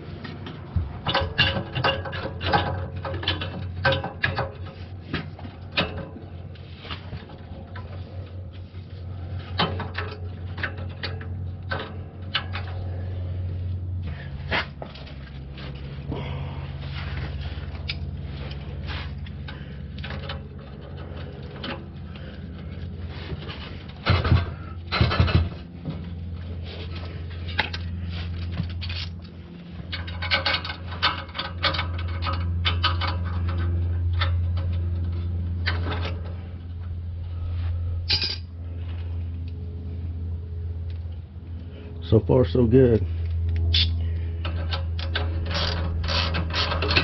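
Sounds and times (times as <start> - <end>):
steady low hum: 0.0 - 47.0
metal tools clinking: 38.0 - 38.5.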